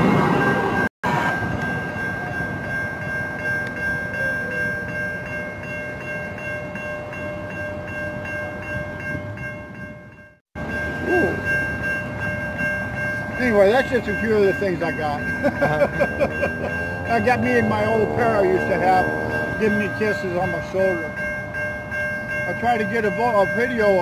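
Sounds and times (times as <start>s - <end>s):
light-rail train rumble: 0.0s - 24.0s
high-pitched tone: 10.6s - 22.0s.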